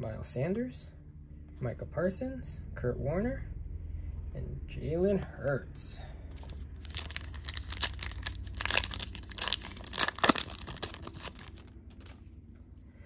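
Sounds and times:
foil wrapper tearing and crinkling: 0:06.8 - 0:12.2.

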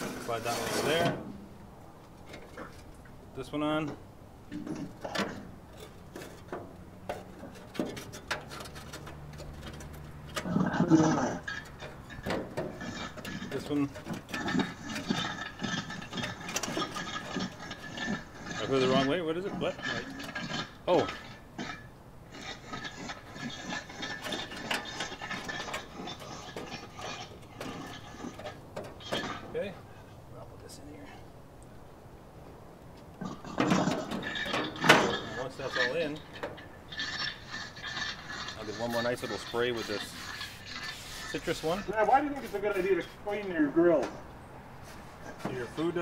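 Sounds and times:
metal grill parts knocking: 0:04.5 - 0:10.6, 0:11.6 - 0:15.4, 0:33.5 - 0:35.2.

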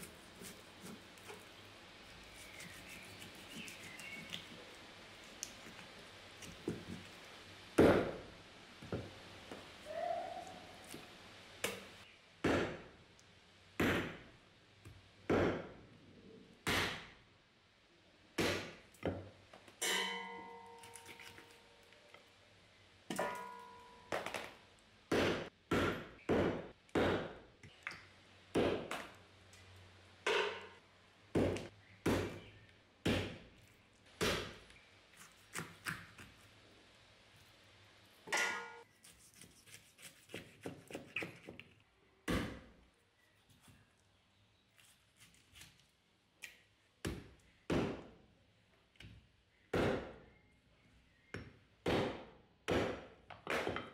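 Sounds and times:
hatchet chopping on wooden block: 0:12.4 - 0:12.8, 0:15.3 - 0:15.7, 0:16.7 - 0:17.1, 0:25.1 - 0:27.4, 0:31.4 - 0:32.4, 0:49.7 - 0:50.2, 0:51.4 - 0:53.9
short metallic ring: 0:19.8 - 0:20.8.

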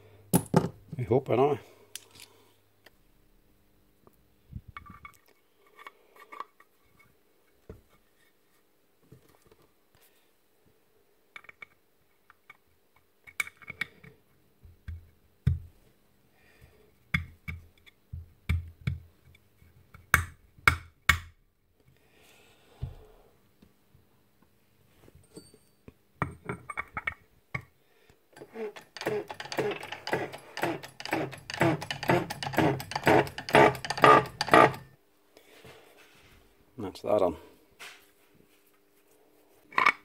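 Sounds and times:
metal parts clicking and knocking: 0:28.3 - 0:34.9.

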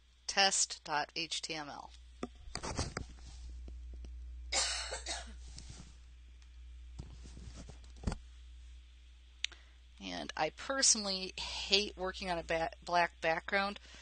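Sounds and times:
steady low hum: 0:00.0 - 0:14.0
person coughing: 0:04.6 - 0:05.4.

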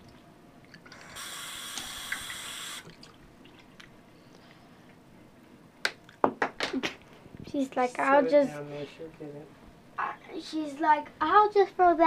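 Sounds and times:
water running from sink tap: 0:01.0 - 0:02.9.

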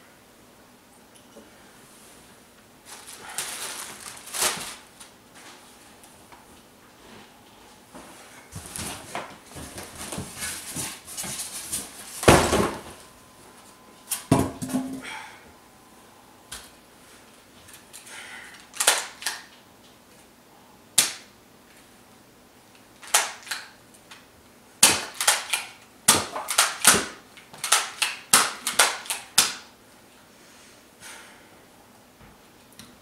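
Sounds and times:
toy blaster plastic clicks: 0:18.8 - 0:19.4, 0:25.1 - 0:25.8, 0:27.6 - 0:29.5.

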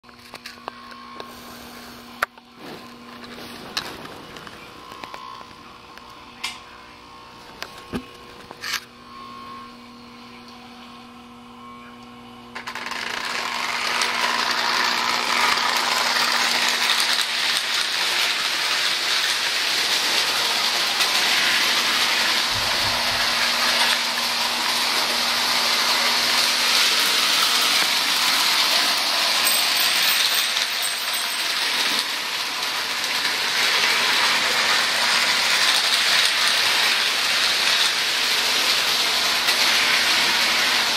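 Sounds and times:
toy train metallic clatter: 0:12.6 - 0:24.0, 0:26.4 - 0:40.9.

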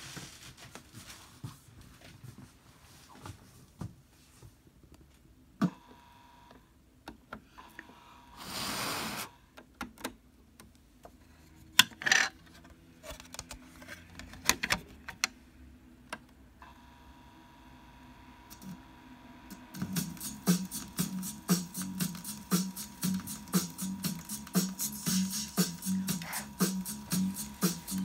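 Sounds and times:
turntable spinning tone: 0:19.5 - 0:28.0.

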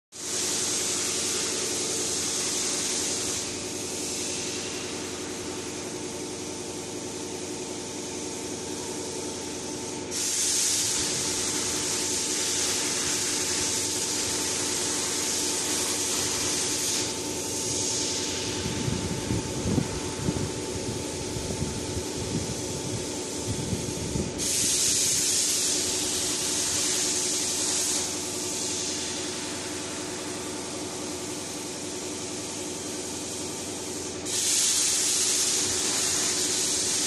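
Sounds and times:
electrical hum: 0:08.6 - 0:28.2
machinery hissing: 0:09.6 - 0:31.2.

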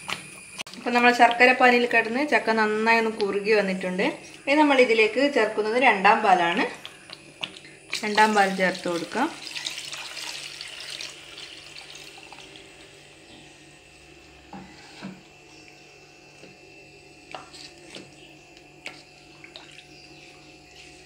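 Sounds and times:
milk pouring and splashing into pot: 0:06.8 - 0:12.9.

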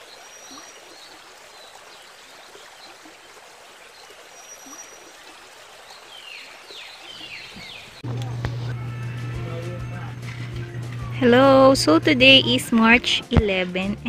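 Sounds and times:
birds chirping faintly: 0:00.0 - 0:08.0
running water: 0:00.0 - 0:14.0
falling bird calls: 0:06.0 - 0:08.0.

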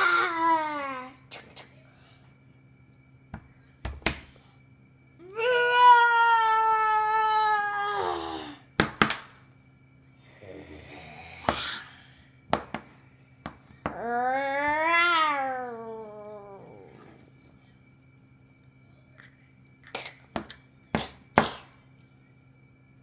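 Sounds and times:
plastic toys knocking on table: 0:12.5 - 0:12.9.

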